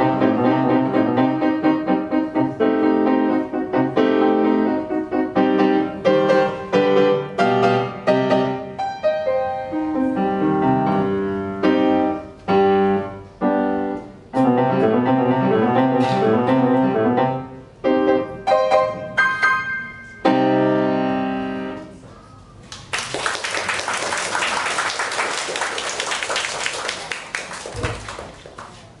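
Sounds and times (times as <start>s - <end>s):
grand piano playing: 0.0s - 22.0s
audience applauding: 22.7s - 28.8s.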